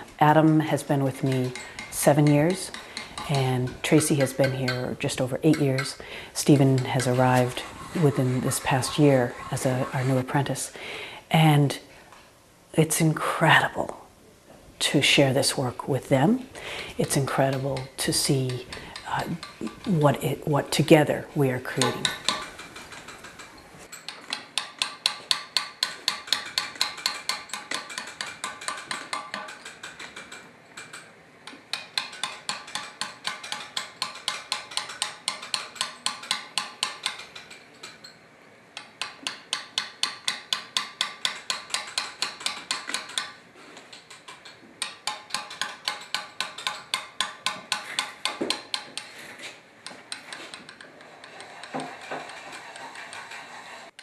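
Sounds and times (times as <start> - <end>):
mallet striking steel chisel: 0.3 - 10.1, 21.8 - 38.2, 38.8 - 43.4, 44.0 - 49.2.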